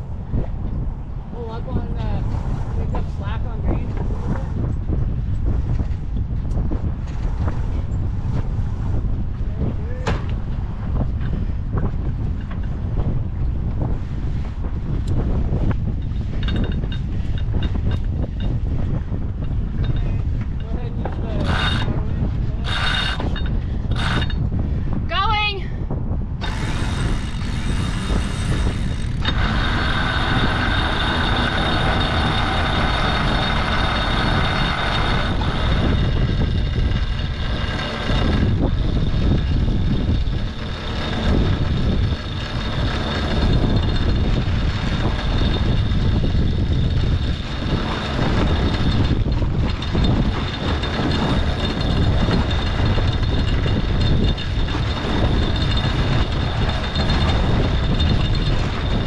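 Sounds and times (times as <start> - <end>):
rumbling wind: 0.0 - 59.0
water noise: 26.4 - 59.0.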